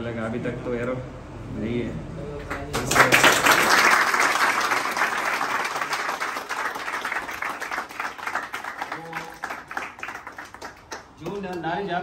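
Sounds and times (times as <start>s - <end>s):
crowd applauding: 2.5s - 11.6s.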